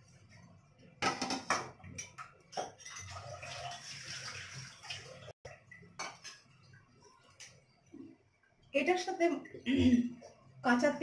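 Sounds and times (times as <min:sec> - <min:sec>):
water running: 0:00.0 - 0:11.0.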